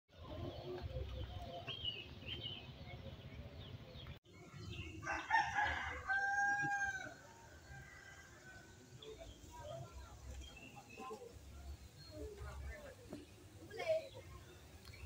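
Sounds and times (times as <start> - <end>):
faint outdoor ambience: 0.1 - 15.0
rooster crowing: 5.0 - 8.6.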